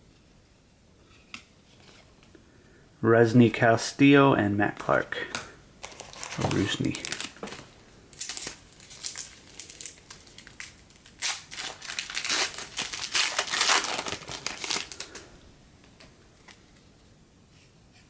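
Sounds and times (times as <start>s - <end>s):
foil wrapper crinkling: 5.8s - 15.3s.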